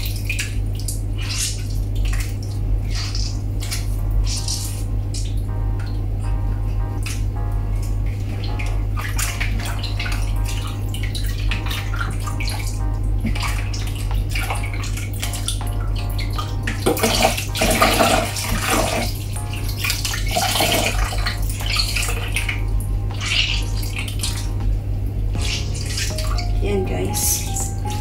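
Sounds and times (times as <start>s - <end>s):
water sloshing in a bowl: 0.0s - 5.4s, 8.2s - 24.6s.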